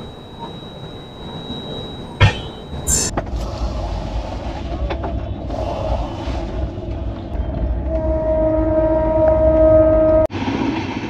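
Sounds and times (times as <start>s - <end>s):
train rumbling on rails: 0.0s - 11.0s.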